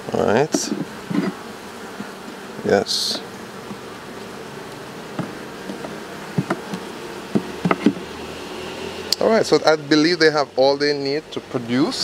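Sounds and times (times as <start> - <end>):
bees humming: 0.0 - 12.0
light knocks on hive: 0.5 - 4.0, 4.6 - 8.1.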